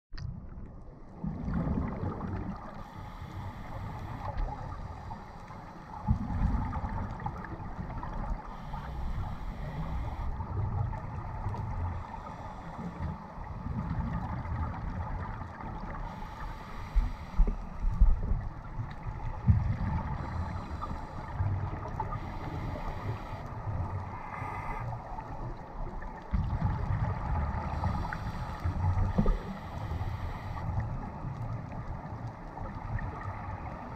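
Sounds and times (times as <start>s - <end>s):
exhale bubbling rumble: 0.2s - 2.9s, 6.0s - 8.4s, 17.0s - 22.8s, 23.7s - 33.9s
regulator inhale hiss: 2.7s - 6.0s, 8.4s - 10.6s, 11.8s - 13.4s, 16.0s - 18.0s, 20.0s - 25.2s, 27.6s - 30.9s.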